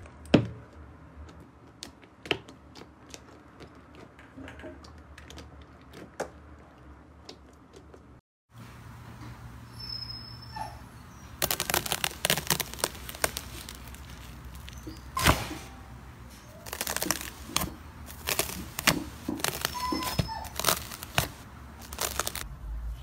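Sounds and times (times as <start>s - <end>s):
foil crinkling and popping: 11.3s - 15.7s, 16.3s - 22.5s.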